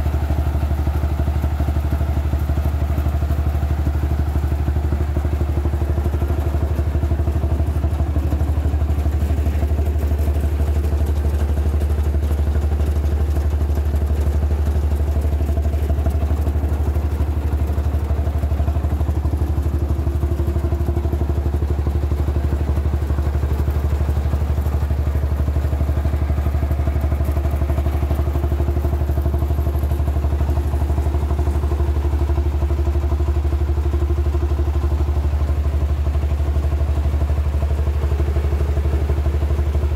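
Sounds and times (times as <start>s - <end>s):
rice milling machine engine drone: 0.0s - 39.9s.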